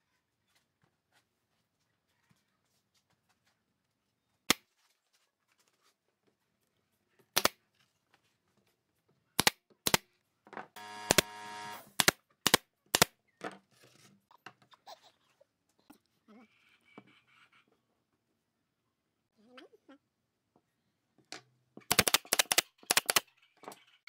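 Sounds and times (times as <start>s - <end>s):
buzzing hum: 10.8s - 12.0s
nail gun firing into wood: 10.8s - 13.1s, 21.9s - 23.2s.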